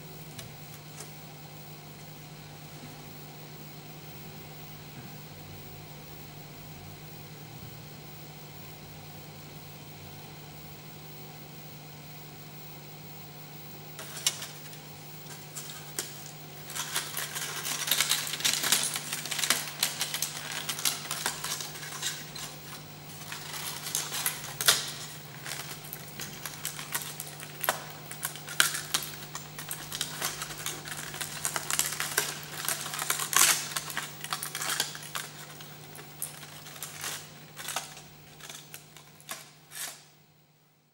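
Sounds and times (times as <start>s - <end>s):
steady low hum: 0.0s - 40.9s
aluminium foil crinkling: 14.0s - 40.1s.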